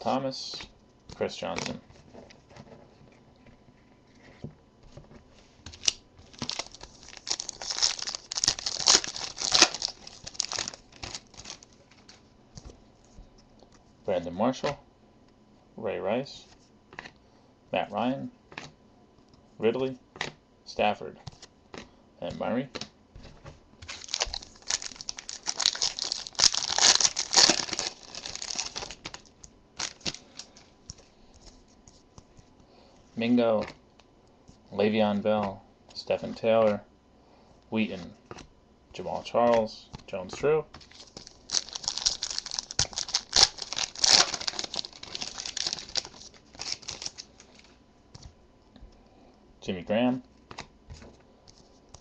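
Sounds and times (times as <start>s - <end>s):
foil wrapper crinkling: 5.7s - 12.2s, 23.8s - 31.6s, 40.8s - 48.3s.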